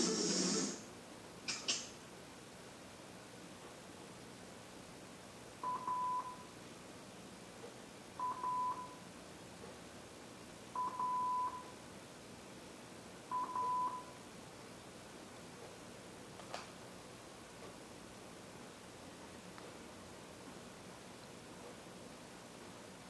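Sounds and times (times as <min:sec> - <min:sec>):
television test tone beeps: 0:05.6 - 0:06.5, 0:08.2 - 0:09.0, 0:10.8 - 0:11.7, 0:13.3 - 0:14.2.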